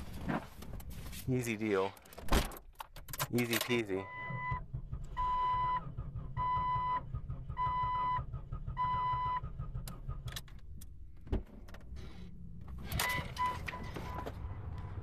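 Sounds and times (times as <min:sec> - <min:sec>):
dashboard warning chime beeps: 0:04.0 - 0:04.6, 0:12.9 - 0:14.4
low engine rumble: 0:04.1 - 0:15.0.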